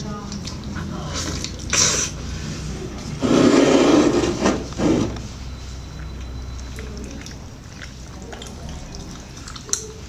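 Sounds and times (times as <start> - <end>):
wet chewing clicks and smacks: 0.0 - 2.2, 5.8 - 10.0.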